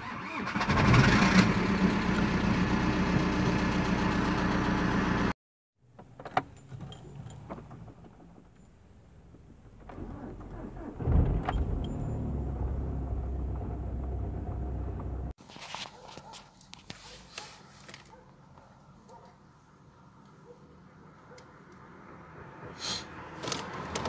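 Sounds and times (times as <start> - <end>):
engine cranking and starting: 0.0 - 2.0, 9.6 - 15.2.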